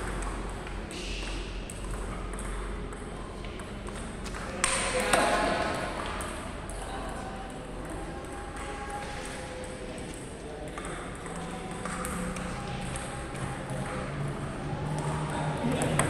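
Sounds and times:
table tennis balls clicking: 1.7 - 5.2, 9.6 - 16.0.

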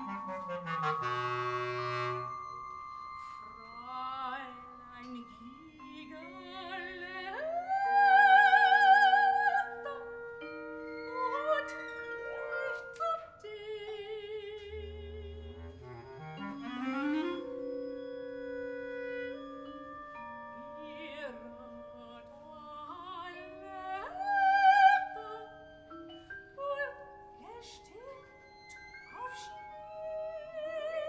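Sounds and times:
mallet percussion notes: 0.0 - 13.4
chamber ensemble held notes: 0.0 - 14.0, 14.8 - 26.8
soprano singing with vibrato: 0.0 - 17.6, 18.4 - 31.0.

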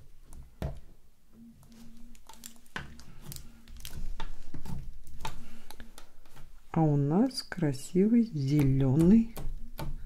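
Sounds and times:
plastic crinkling: 1.5 - 6.6
fingernails tapping on plastic: 8.5 - 10.0.

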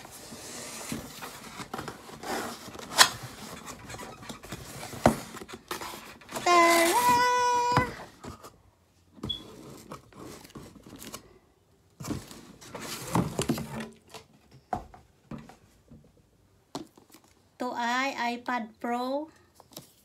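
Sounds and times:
cardboard scraping and rustling: 0.0 - 8.6, 9.2 - 11.2, 12.0 - 14.2
excited high-pitched exclamation: 6.5 - 8.1.

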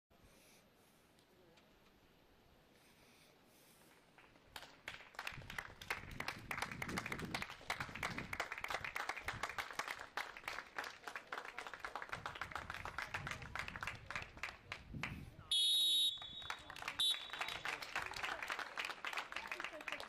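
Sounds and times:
crowd applauding: 4.1 - 15.1, 16.1 - 20.0.

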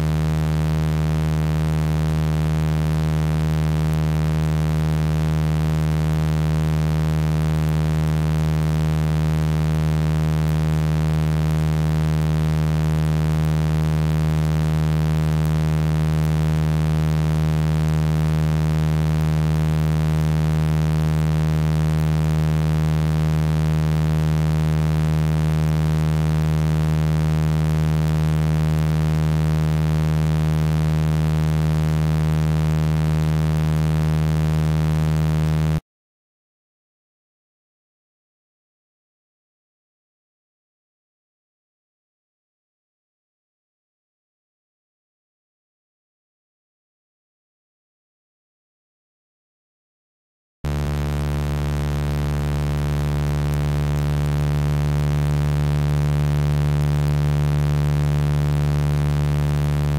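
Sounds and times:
synthesized low hum with overtones: 0.0 - 35.8, 50.7 - 59.9.

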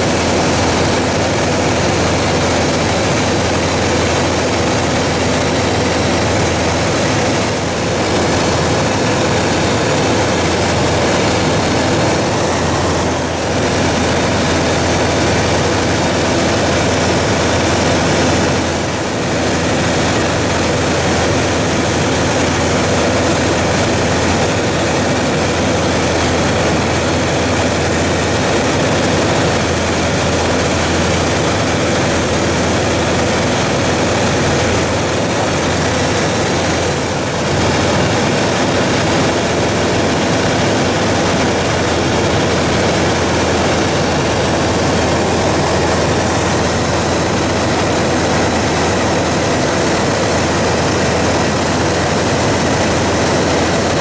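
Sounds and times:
propeller aircraft engine drone: 0.0 - 54.0.

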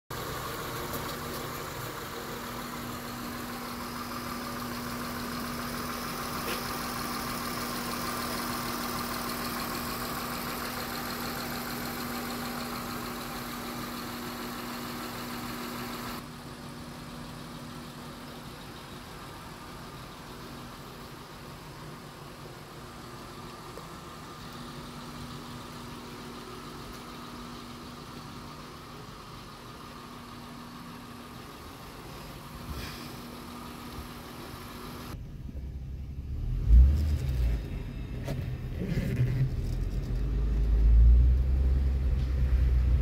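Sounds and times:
car engine idling: 0.1 - 43.0.

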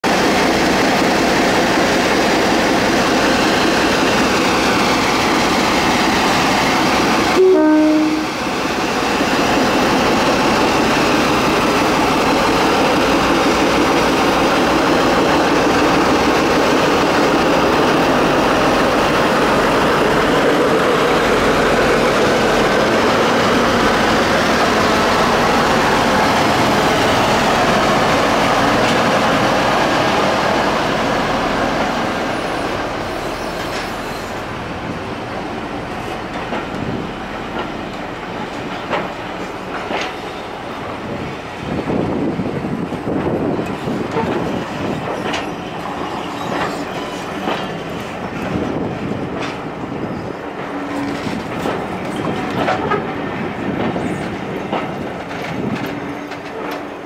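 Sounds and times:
diesel locomotive engines running: 0.0 - 57.0
two-note locomotive horn: 7.4 - 8.4.

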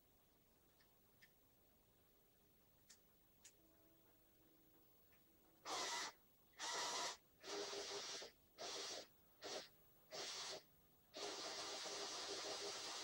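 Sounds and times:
toy motors and gears whirring: 5.7 - 13.0.

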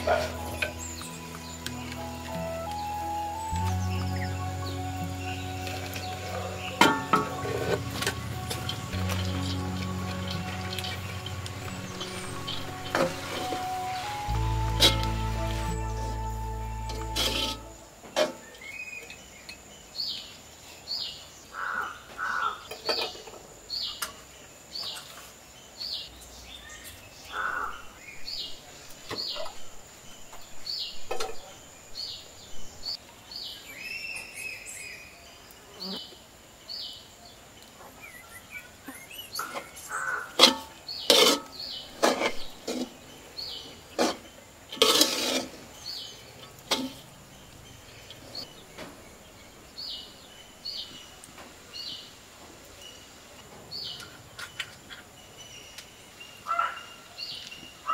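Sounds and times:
birds chirping: 0.0 - 23.0, 25.7 - 44.7
wooden spatula scraping a wok: 17.0 - 18.4, 40.4 - 43.1, 43.9 - 46.1.

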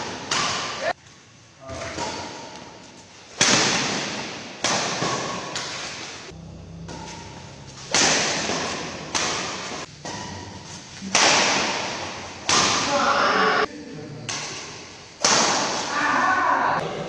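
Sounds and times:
rackets hitting shuttlecock: 0.0 - 1.0, 1.8 - 6.2, 6.8 - 13.2, 14.3 - 16.0.

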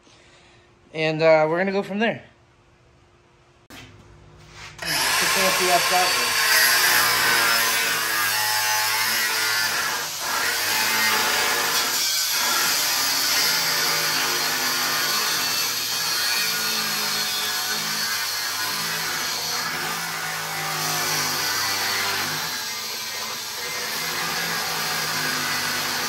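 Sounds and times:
cordless drill running: 4.8 - 8.0
angle grinder cutting steel: 4.8 - 26.0.

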